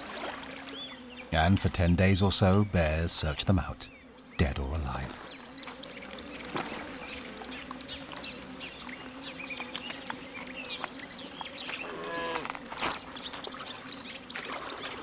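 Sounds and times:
birds chirping: 0.0s - 15.0s
water lapping among stones: 12.7s - 15.0s.

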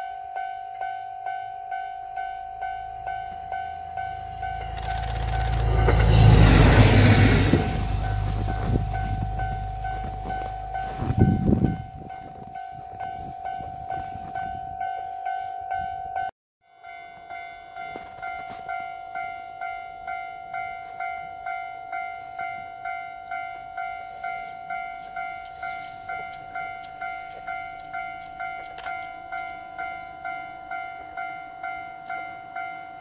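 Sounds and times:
level crossing warning bell: 0.0s - 33.0s
low rush: 3.4s - 12.0s.

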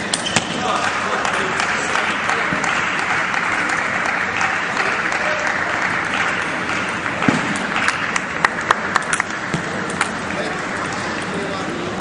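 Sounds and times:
spectators applauding: 0.7s - 9.4s.

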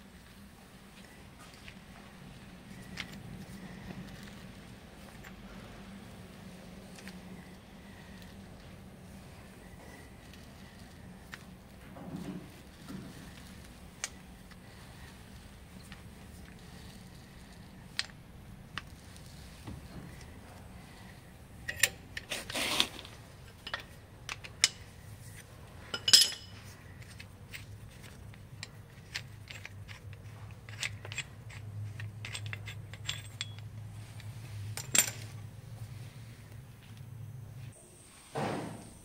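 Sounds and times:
low steady hum: 0.0s - 39.0s
metal tools clinking: 21.6s - 24.9s, 25.9s - 35.4s
metal clanks: 25.9s - 26.6s.

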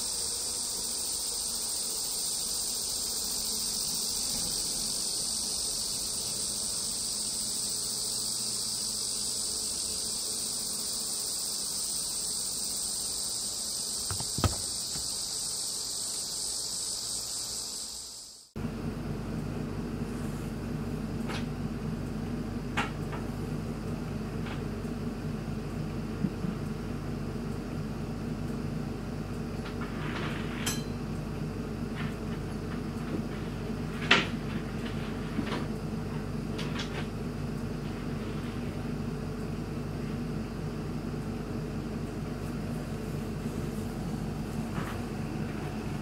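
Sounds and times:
small knocks and clicks: 14.1s - 15.1s
low room hum: 18.6s - 46.0s.

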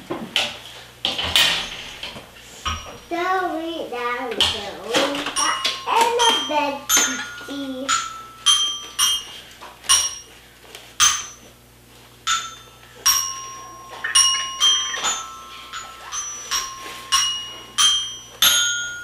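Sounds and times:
toy xylophone notes: 5.2s - 10.3s, 12.3s - 19.0s.

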